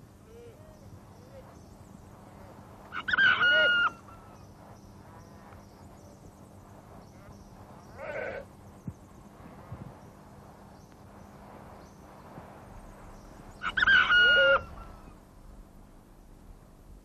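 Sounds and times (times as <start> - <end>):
rooster crowing: 13.6 - 15.1.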